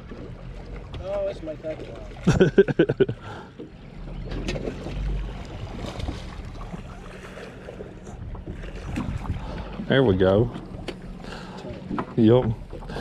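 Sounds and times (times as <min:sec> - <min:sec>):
low rumble: 0:02.2 - 0:13.0
wind on microphone: 0:08.1 - 0:09.7.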